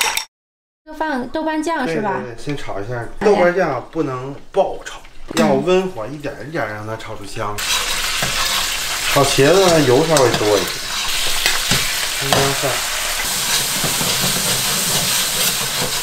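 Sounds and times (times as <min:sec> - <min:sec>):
metal ladle stirring in wok: 0:07.6 - 0:12.4
paste sizzling in hot oil: 0:07.6 - 0:16.0.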